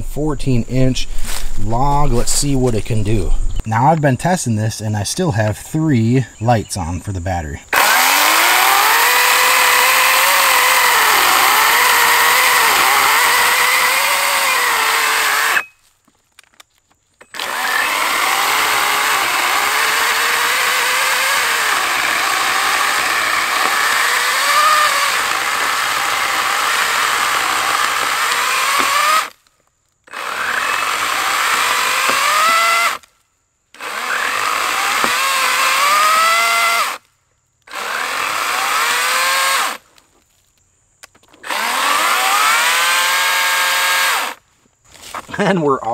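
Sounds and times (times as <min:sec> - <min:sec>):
electric chainsaw cutting log: 0:07.7 - 0:15.7, 0:17.2 - 0:33.1, 0:33.7 - 0:39.9, 0:41.3 - 0:44.4.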